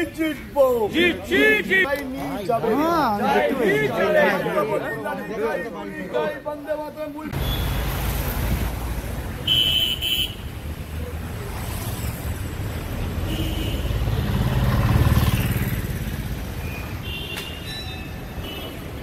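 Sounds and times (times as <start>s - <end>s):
road traffic rumble: 0.0s - 19.0s
vehicle passing close: 13.9s - 16.6s.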